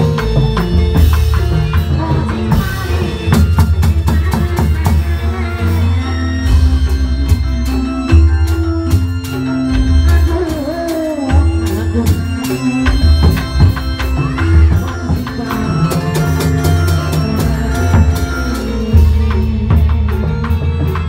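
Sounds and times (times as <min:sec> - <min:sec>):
drums playing a busy rhythm: 0:00.0 - 0:21.0
person singing: 0:00.0 - 0:21.0.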